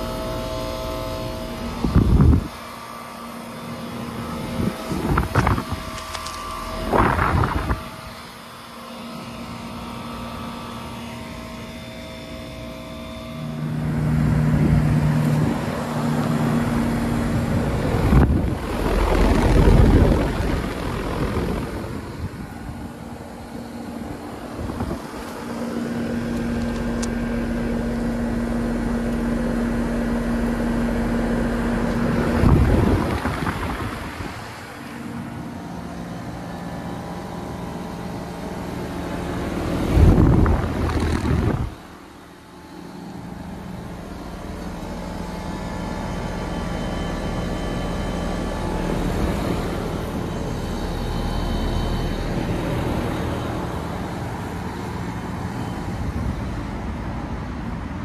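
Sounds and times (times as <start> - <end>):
heat pump fan and compressor hum: 0.0 - 58.0
wind gusts on microphone: 1.8 - 2.6, 4.4 - 8.3, 16.6 - 23.3, 32.1 - 34.6, 39.7 - 41.9.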